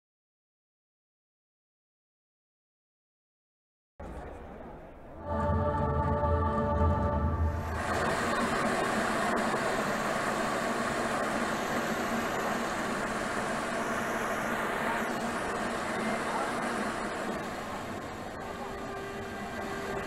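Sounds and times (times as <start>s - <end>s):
arena crowd hubbub: 4.0s - 20.0s.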